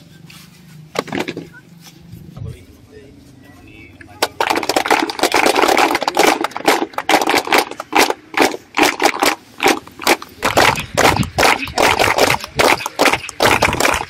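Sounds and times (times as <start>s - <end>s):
children clapping: 4.2s - 14.0s.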